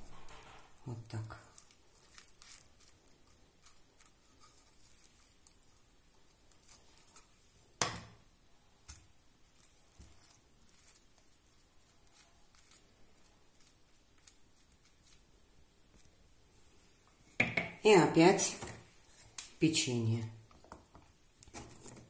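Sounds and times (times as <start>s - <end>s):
cling film crinkling: 0.1s - 7.5s, 9.4s - 16.2s.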